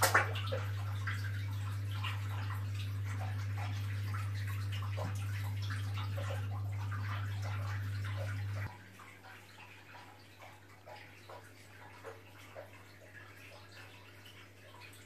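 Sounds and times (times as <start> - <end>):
steady low hum: 0.0 - 11.0
water splashing and dripping: 0.0 - 15.0.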